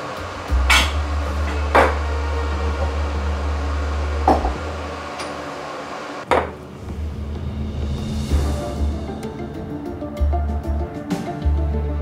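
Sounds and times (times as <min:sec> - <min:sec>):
coffee machine humming: 0:00.0 - 0:06.3.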